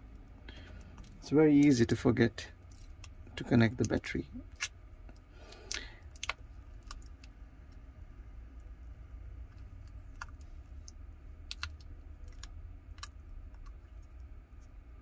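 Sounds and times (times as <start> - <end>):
low steady hum: 0.0 - 15.0
connectors clicking onto circuit board: 3.0 - 7.8.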